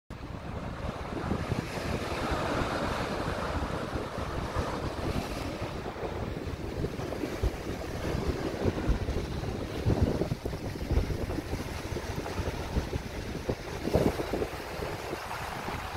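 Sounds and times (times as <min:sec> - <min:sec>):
wind buffeting microphone: 0:00.1 - 0:15.9
waves breaking over rocks: 0:00.2 - 0:15.9.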